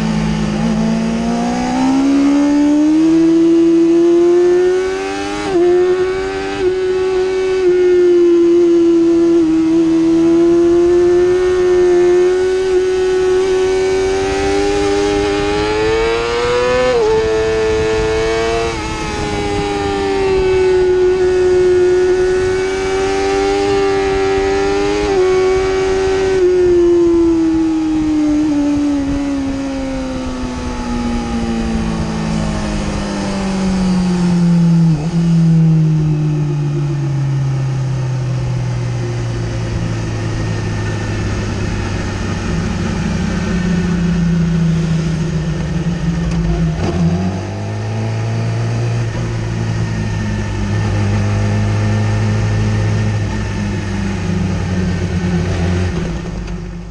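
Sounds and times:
motorcycle engine revving high: 0:00.0 - 0:56.9
wind rush: 0:13.5 - 0:22.7.

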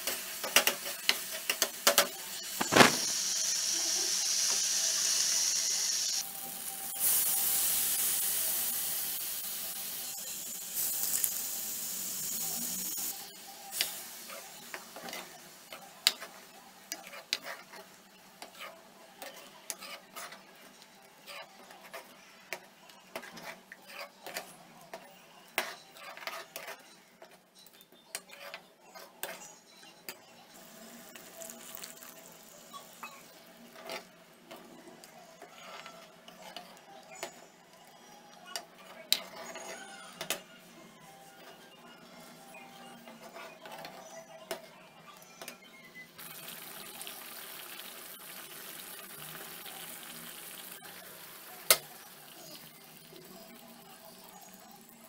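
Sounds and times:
liquid hissing in hot pan: 0:02.4 - 0:14.2.

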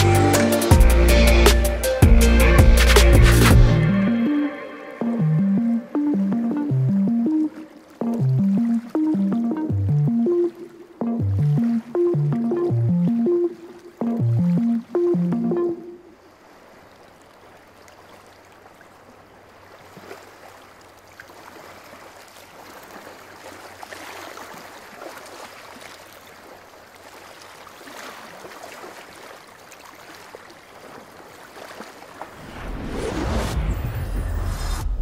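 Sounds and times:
water lapping: 0:04.4 - 0:32.5
low rumble: 0:32.4 - 0:35.0.

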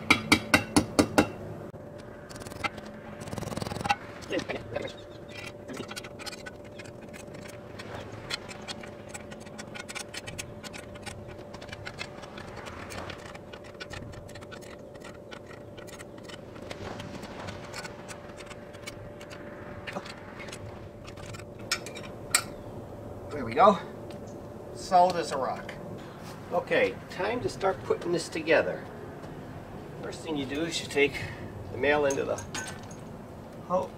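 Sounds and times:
faint steady hum: 0:00.0 - 0:33.9
tool scraping: 0:02.3 - 0:22.5.

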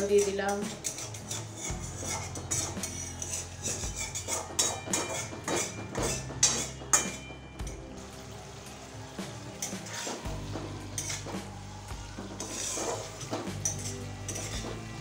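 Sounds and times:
spatula scraping metal pan: 0:00.0 - 0:07.3, 0:09.6 - 0:10.3, 0:11.0 - 0:11.4, 0:12.2 - 0:15.0.

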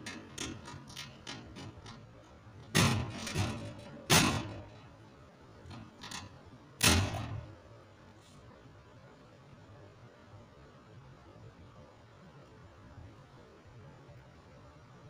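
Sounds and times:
metal cage clanking: 0:00.0 - 0:07.6.

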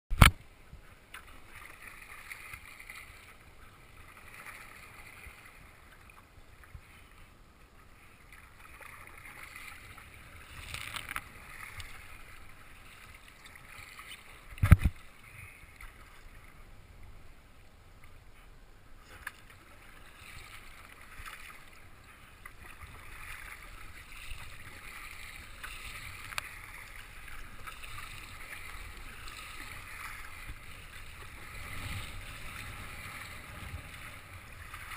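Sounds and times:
water sloshing around kayak: 0:00.2 - 0:17.3, 0:18.0 - 0:34.9.

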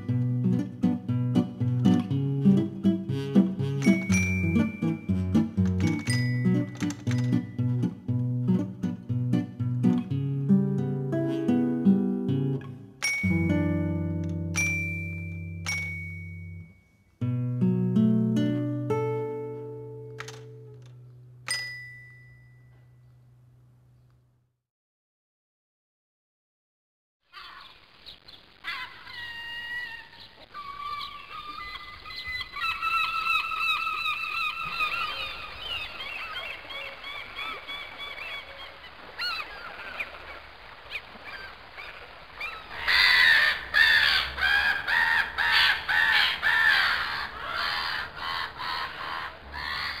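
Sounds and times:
birds honking and squawking: 0:42.4 - 0:50.0.

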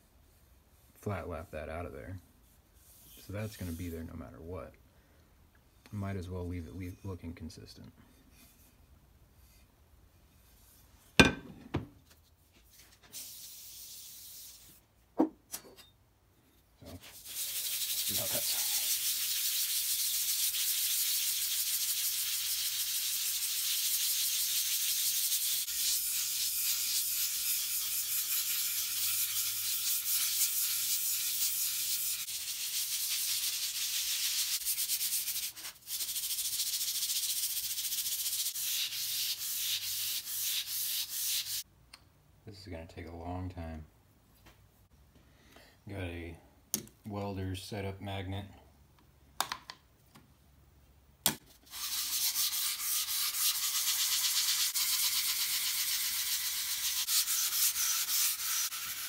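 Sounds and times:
metal rubbing on abrasive paper: 0:02.4 - 0:04.1, 0:12.6 - 0:14.8, 0:16.8 - 0:41.6, 0:51.6 - 0:59.0.

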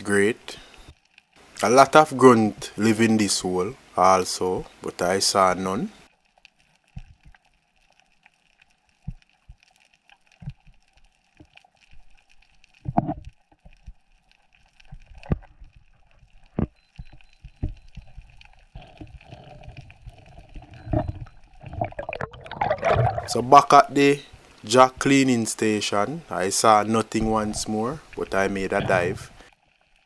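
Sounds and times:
faint underwater hiss: 0:00.0 - 0:06.2, 0:22.2 - 0:29.6
underwater knocks and gurgles: 0:06.8 - 0:08.1, 0:09.0 - 0:23.3.

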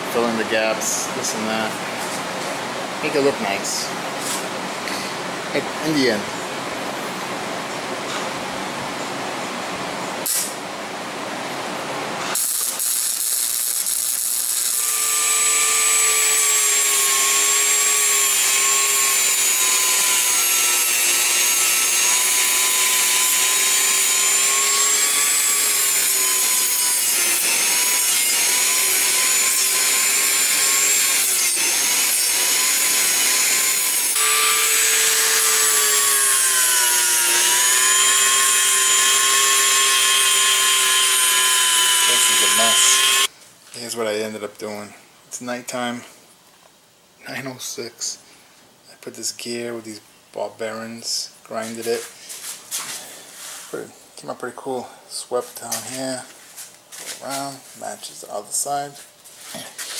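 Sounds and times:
rotary tool sanding metal: 0:12.4 - 0:43.3.

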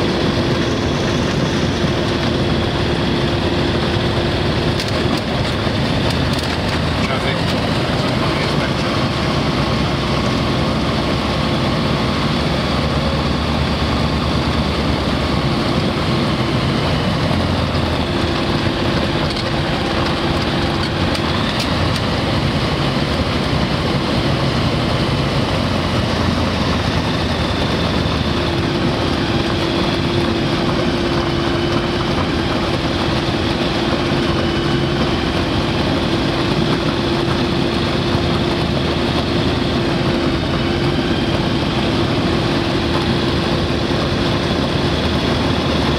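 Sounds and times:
light aircraft engine drone: 0:00.0 - 0:45.9.

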